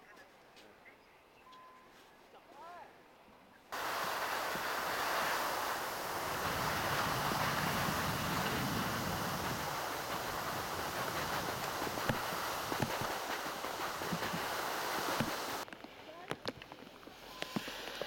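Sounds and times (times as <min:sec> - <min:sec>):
wind on microphone: 0:03.8 - 0:15.6.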